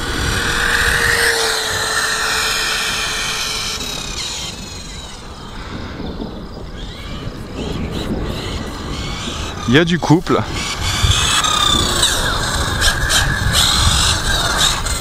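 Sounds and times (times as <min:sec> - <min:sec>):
rc car motor whining: 0:00.0 - 0:05.7, 0:10.6 - 0:15.0.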